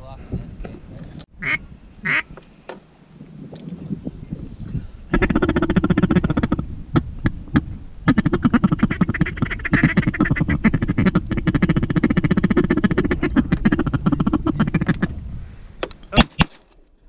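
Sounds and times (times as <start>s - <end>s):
duck call quacking: 1.4s - 2.3s, 8.1s - 15.0s.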